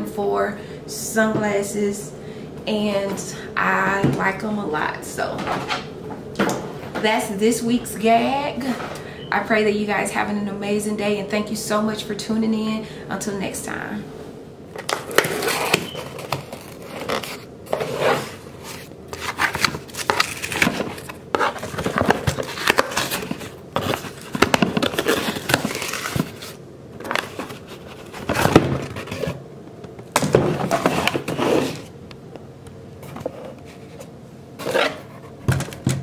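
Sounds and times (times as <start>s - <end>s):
cardboard scraping and rustling: 14.8s - 29.4s, 30.3s - 31.9s, 33.0s - 35.7s
tape tearing: 14.8s - 29.4s.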